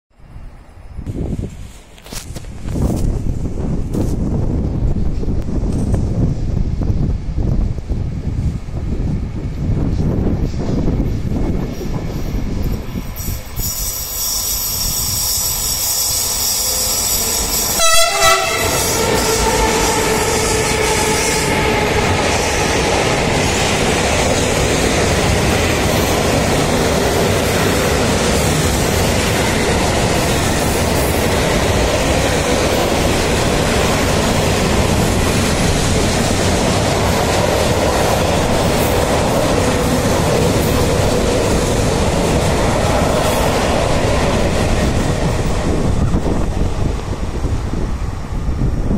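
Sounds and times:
train horn blasts: 14.2 - 22.6.

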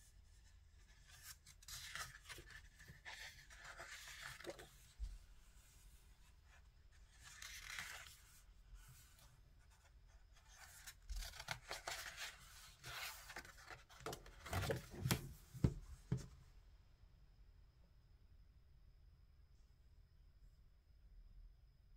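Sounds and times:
book pages turning: 0.8 - 6.0, 6.9 - 16.2
book closing: 1.1 - 4.9, 10.4 - 16.3.

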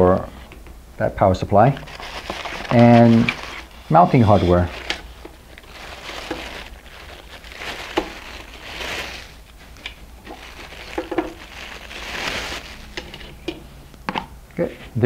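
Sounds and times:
plastic bags crinkling: 1.7 - 13.5
items knocking on a table: 11.0 - 11.4.

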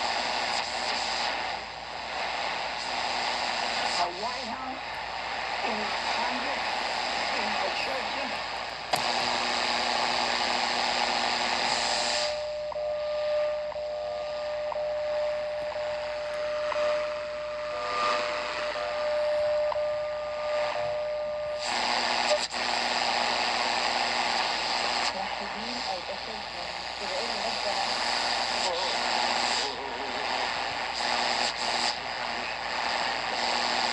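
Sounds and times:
radio static hiss: 0.0 - 33.9
steady radio whistle: 9.1 - 33.9.

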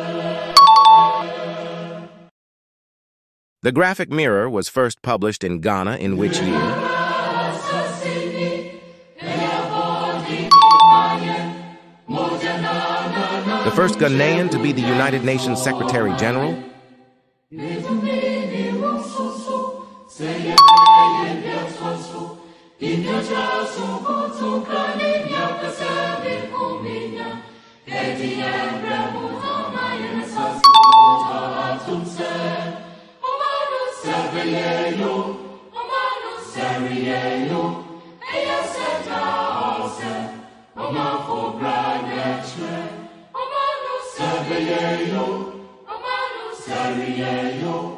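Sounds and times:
choir music: 0.0 - 2.3, 6.2 - 47.9
bright bell-like chime: 0.6 - 1.3, 10.5 - 11.3, 20.6 - 21.4, 30.6 - 31.5.

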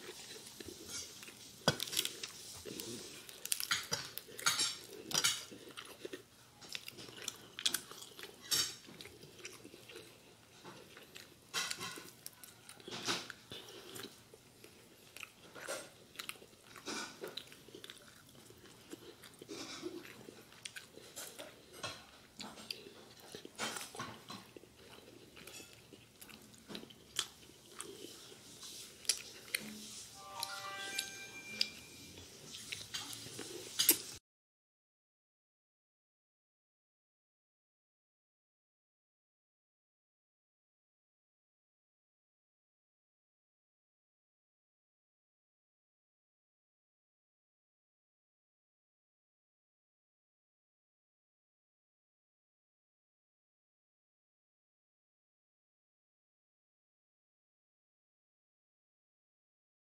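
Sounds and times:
person chewing: 0.0 - 34.1.

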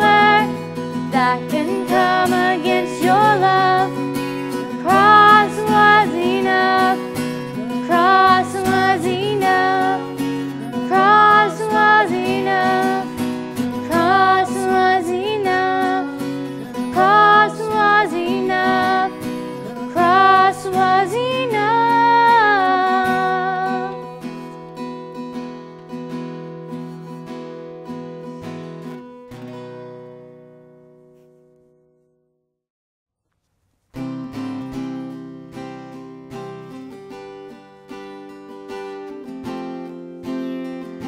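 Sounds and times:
woman singing: 0.0 - 24.4
strummed acoustic guitar: 0.0 - 32.0, 33.9 - 41.0.

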